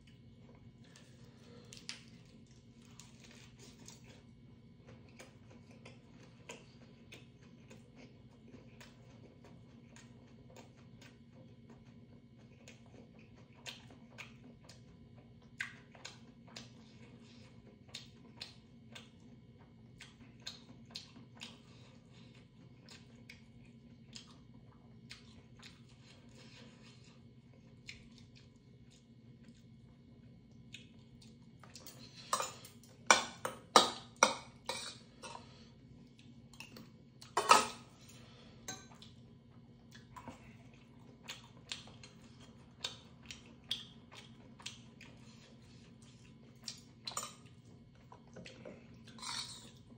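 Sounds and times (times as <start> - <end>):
close-up chewing: 0.0 - 33.1, 34.0 - 49.9
faint steady hum: 0.0 - 49.9
metal utensils clinking on bowl: 37.4 - 37.8.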